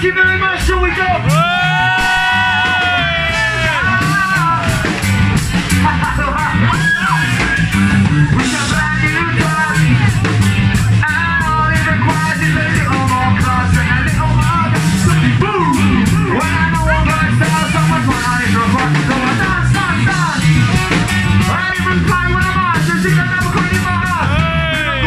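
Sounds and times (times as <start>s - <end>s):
bass guitar: 0.0s - 25.0s
drums: 0.0s - 25.0s
ska-punk band playing live: 0.0s - 25.0s
person singing: 1.3s - 5.0s, 21.4s - 25.0s.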